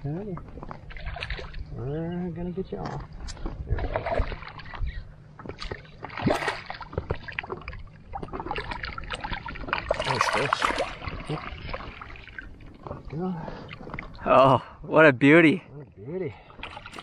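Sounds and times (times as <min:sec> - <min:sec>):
fish splashing in water: 0:00.8 - 0:01.7, 0:05.6 - 0:12.8.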